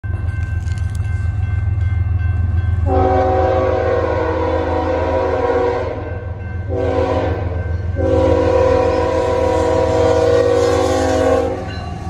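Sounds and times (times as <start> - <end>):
crossing bells ringing: 0.0 - 12.0
low train rumble: 0.0 - 12.0
locomotive air horn blasts: 2.8 - 11.8.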